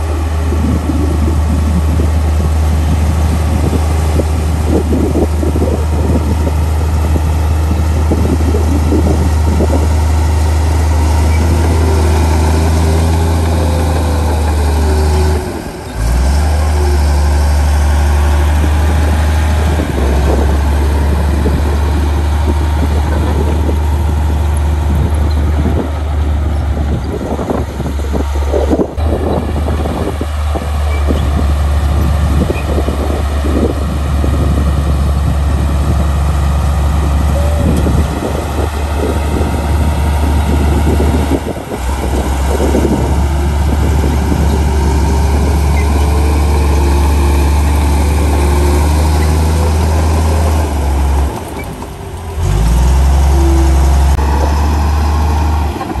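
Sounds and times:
bulldozer diesel engine droning: 0.0 - 56.0
tracks clanking and crunching: 37.6 - 56.0.

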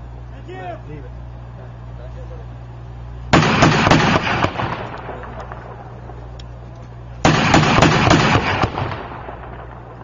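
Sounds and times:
steady low hum: 0.0 - 10.0
gunfire echo: 3.3 - 6.3, 7.2 - 10.0
chain gun burst: 3.4 - 5.7, 7.2 - 9.6.

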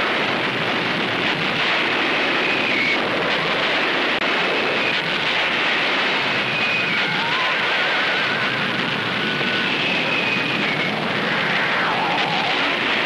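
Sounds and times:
dense rushing noise: 0.0 - 13.0
faint high whistling tones: 6.4 - 8.5, 9.2 - 10.9.

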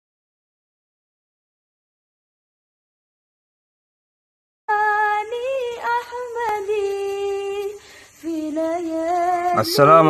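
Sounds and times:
woman singing unaccompanied: 4.7 - 10.0.

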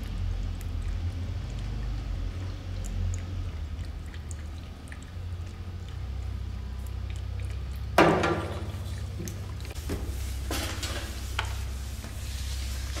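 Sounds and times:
cat licking and chewing: 0.0 - 8.0.

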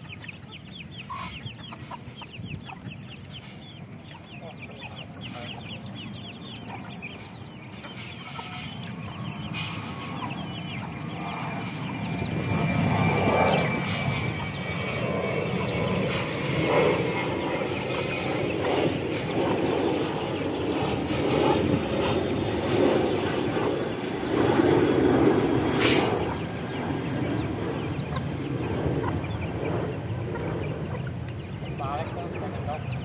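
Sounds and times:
hens clucking: 0.0 - 12.6, 27.8 - 33.0
chicks peeping: 0.0 - 24.2, 25.6 - 33.0.

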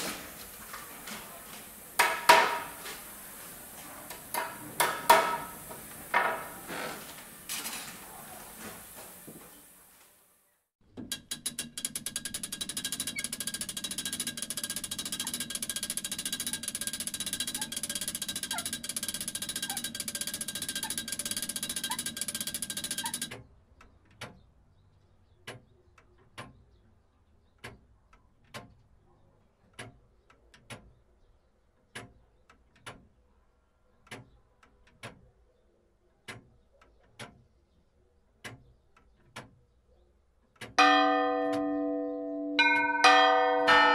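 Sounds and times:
mechanism clattering: 11.0 - 23.4
sharp ticks: 11.1 - 23.4.

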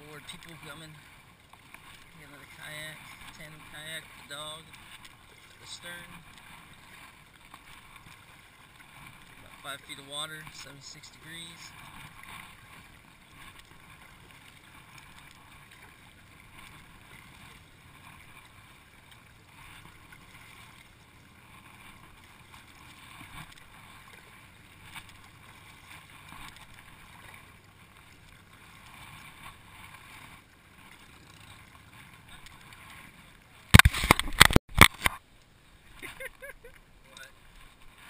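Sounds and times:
light clicks from paddle and boat: 0.0 - 38.0
paddle splashing in water: 0.0 - 38.0.

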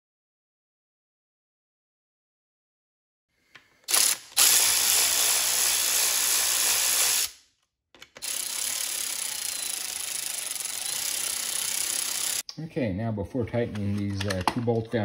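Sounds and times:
power tool spinning socket: 3.8 - 7.4, 8.0 - 12.4.

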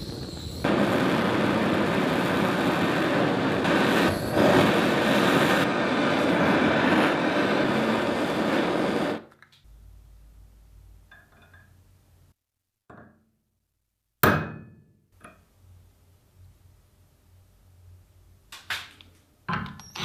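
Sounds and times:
gas torch flame hissing: 0.0 - 9.3
hammer striking metal punch: 14.2 - 15.0.

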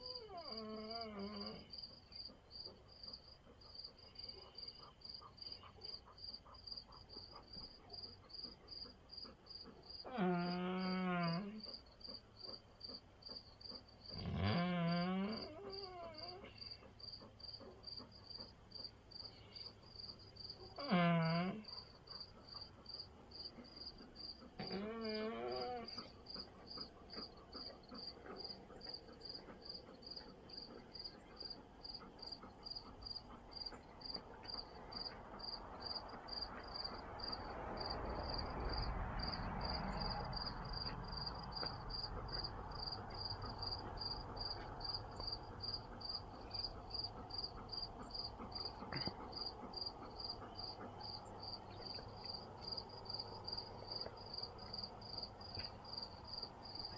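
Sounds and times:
dog whining: 0.0 - 1.7, 10.0 - 11.6, 14.1 - 16.6, 20.8 - 21.7, 24.6 - 26.1
crickets chirping: 11.6 - 56.9.

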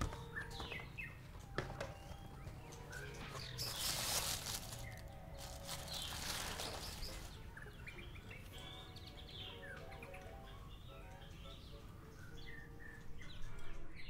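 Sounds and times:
small birds chirping: 0.0 - 14.0
tissue paper rustling: 3.6 - 7.4.

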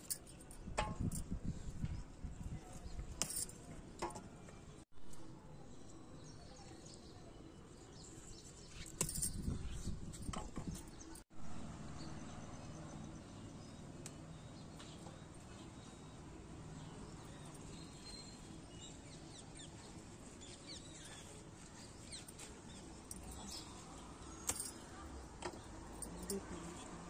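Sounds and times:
glass bangles clinking: 0.0 - 1.3, 3.2 - 3.6, 8.7 - 11.2, 22.1 - 26.9.

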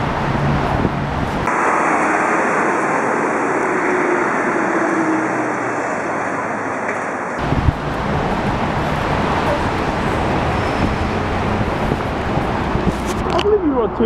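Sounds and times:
road traffic roar: 0.0 - 14.0.

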